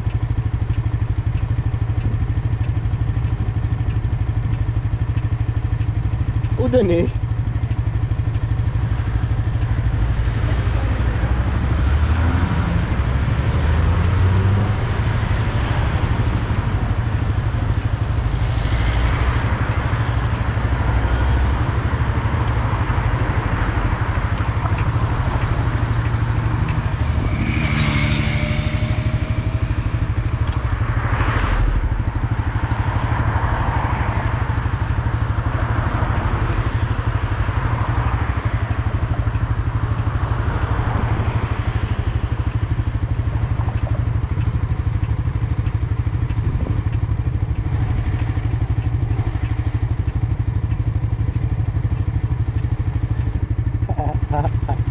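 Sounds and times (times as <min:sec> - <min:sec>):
motorcycle engine running: 0:00.0 - 0:54.9
traffic passing: 0:00.0 - 0:54.9.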